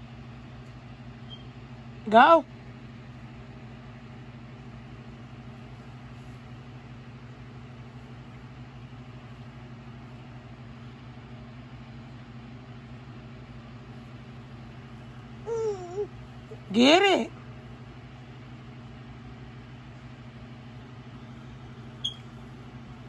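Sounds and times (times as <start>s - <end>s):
low mechanical hum: 0.0s - 23.0s.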